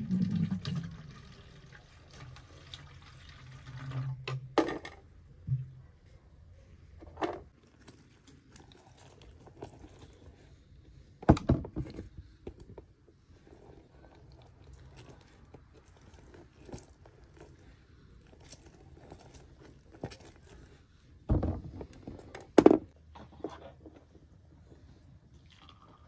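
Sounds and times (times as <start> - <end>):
small clicks and rustles: 7.5 - 10.9, 11.8 - 21.0.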